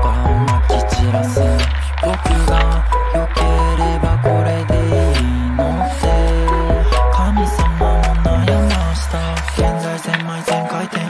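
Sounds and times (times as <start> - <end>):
kick drum beat: 0.0 - 1.6, 2.3 - 2.8, 4.0 - 5.1, 6.0 - 6.9, 7.6 - 8.9, 9.6 - 9.8
deep bass: 0.0 - 9.8
synth chords: 0.0 - 11.0.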